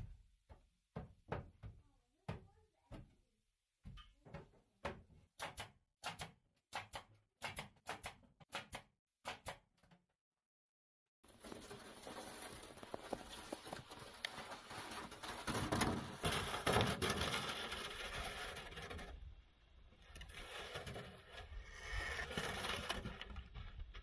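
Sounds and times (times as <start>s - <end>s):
plastic sled scraping snow: 11.2s - 19.4s, 20.0s - 24.0s
footsteps crunching in snow: 11.3s - 15.8s.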